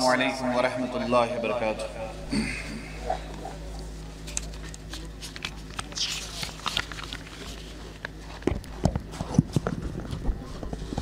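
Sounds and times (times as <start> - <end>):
public address system hum: 0.0 - 8.4.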